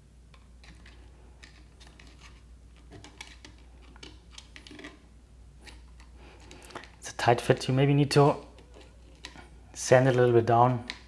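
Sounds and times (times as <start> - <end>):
clicks and scrapes on plastic: 0.3 - 5.0.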